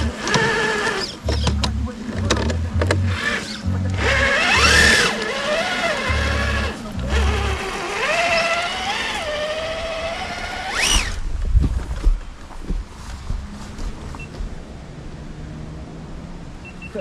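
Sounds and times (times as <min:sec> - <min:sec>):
electric motor whining: 0:00.0 - 0:11.2
music with deep bass beat: 0:01.2 - 0:05.2.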